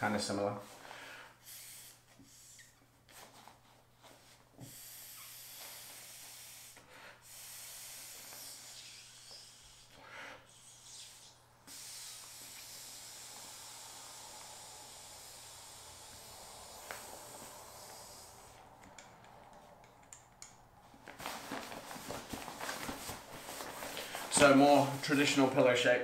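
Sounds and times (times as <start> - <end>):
blowing up inflatable pillow: 1.4 - 3.4, 4.5 - 19.3.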